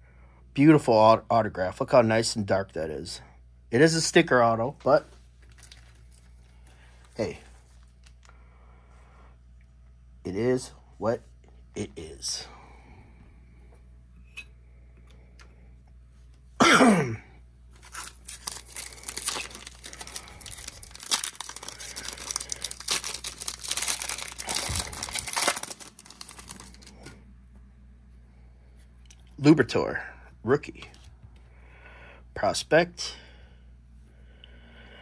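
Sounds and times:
foil wrapper tearing and crinkling: 0:05.4 - 0:06.2, 0:17.8 - 0:27.2.

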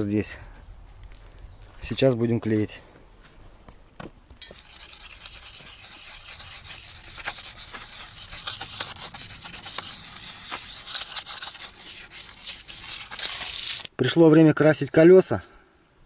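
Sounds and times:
sandpaper scratching steel wheel: 0:04.4 - 0:13.9.

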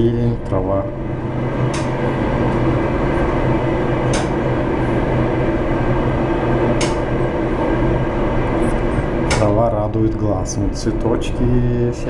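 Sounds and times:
low hum: 0:00.0 - 0:12.0
short sharp click: 0:06.8 - 0:07.0.

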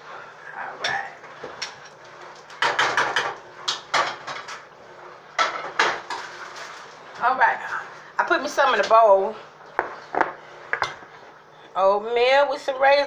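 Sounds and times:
dishes clinking and knocking: 0:02.5 - 0:04.7, 0:05.4 - 0:06.4, 0:09.8 - 0:11.1.

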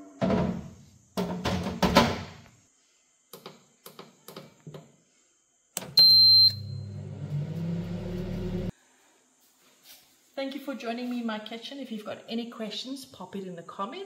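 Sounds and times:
fan humming: 0:05.8 - 0:08.7
loud high beep: 0:06.0 - 0:07.0.

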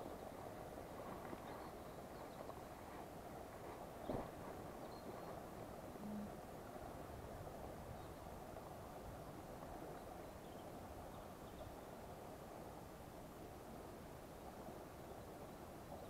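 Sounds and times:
fast-running river rushing: 0:00.0 - 0:15.9
faint bird chirps: 0:04.8 - 0:05.4
low hoot: 0:06.0 - 0:06.4.

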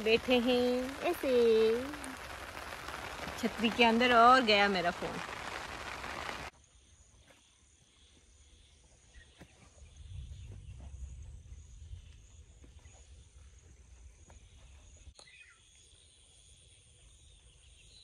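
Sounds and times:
rain pattering on an umbrella: 0:00.0 - 0:06.5
insects chirring: 0:00.0 - 0:07.2
wind rumble on microphone: 0:09.8 - 0:13.5.

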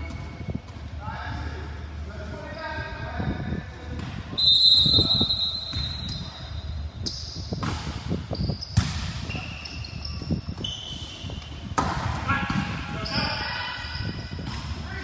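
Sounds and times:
shoe squeaks on court: 0:04.8 - 0:11.8
basketball dribbling thuds: 0:07.5 - 0:09.3.

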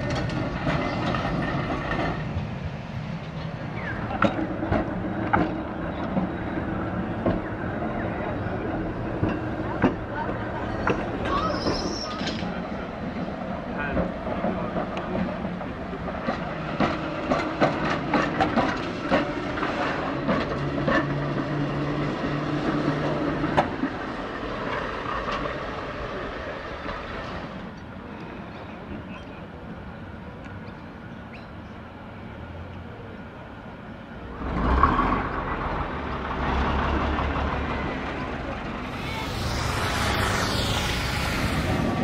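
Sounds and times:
tram wheels clicking over rail joints: 0:00.0 - 0:26.0
bus engine throbbing: 0:36.0 - 0:42.0
tram motor hum: 0:36.9 - 0:42.0.

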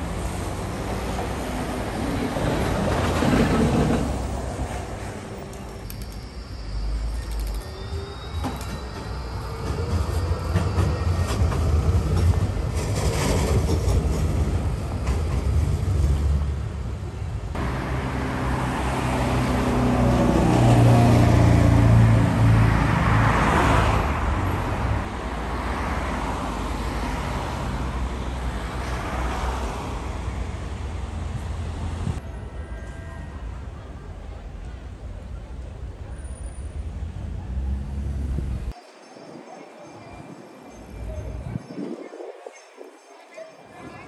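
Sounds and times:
general traffic noise: 0:00.0 - 0:44.0
tram rumbling past: 0:00.0 - 0:44.0
road vehicle passing close: 0:15.4 - 0:32.2.

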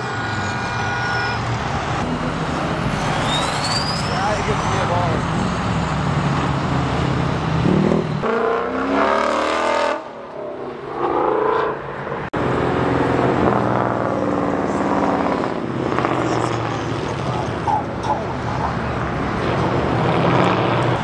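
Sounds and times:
pickup engine revving past: 0:18.4 - 0:21.0.

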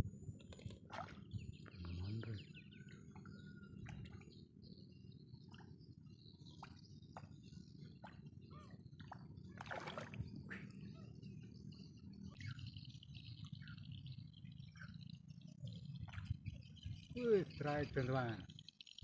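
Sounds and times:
low wind rumble: 0:00.0 - 0:18.6
drip-like ticks: 0:12.2 - 0:19.0.

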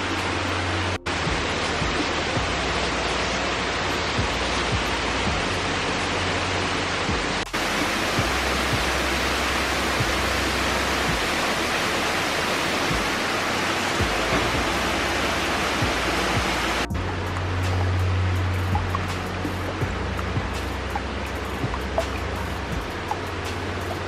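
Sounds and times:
water running over rocks: 0:00.0 - 0:24.0
waterfall rushing: 0:00.0 - 0:24.0.

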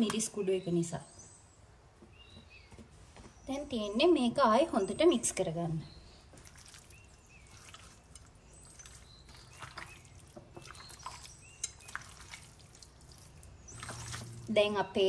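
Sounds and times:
wet squelching of mixed chicken: 0:06.1 - 0:14.5.

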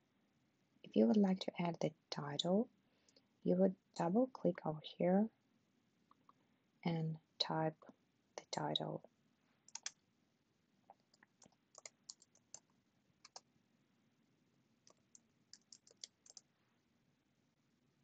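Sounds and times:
faint keyboard typing: 0:09.6 - 0:10.0, 0:10.9 - 0:13.5, 0:14.8 - 0:16.5.

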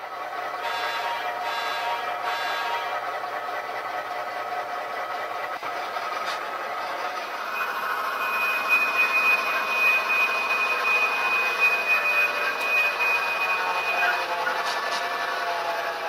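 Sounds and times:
model train diesel engine sound: 0:00.0 - 0:16.0
high whistle-like tone: 0:07.4 - 0:15.0.

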